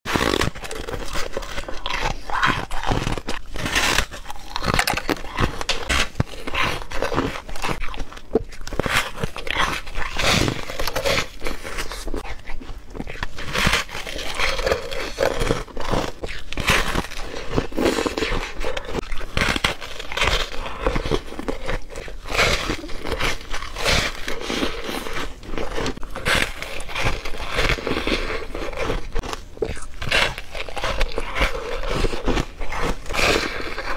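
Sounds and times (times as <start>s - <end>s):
crunchy bites and chewing: 0.1s - 33.9s.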